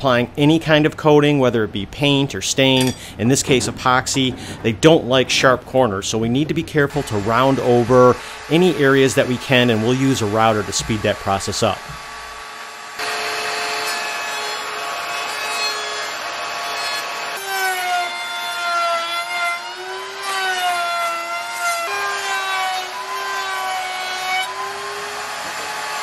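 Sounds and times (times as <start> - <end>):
router whining through wood: 6.9 - 26.0.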